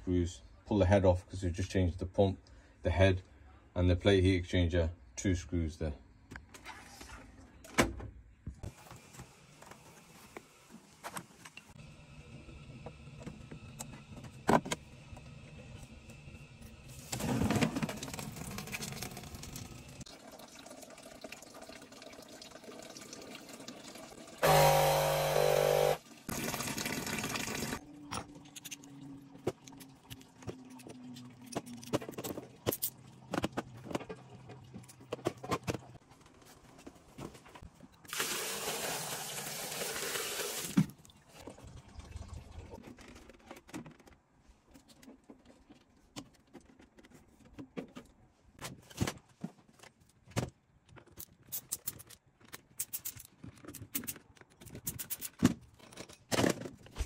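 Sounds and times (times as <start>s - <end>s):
water splashing into drain: 26.0s - 27.8s, 38.1s - 40.8s
tools clicking and knocking: 50.8s - 56.9s.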